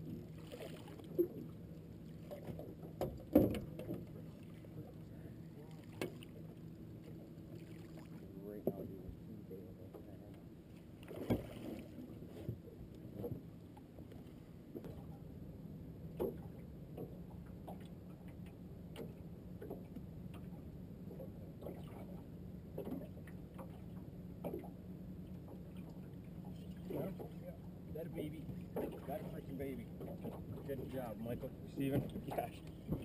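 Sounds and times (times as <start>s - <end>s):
steady low hum: 0.0s - 33.0s
knocks against boat hull: 3.0s - 4.0s.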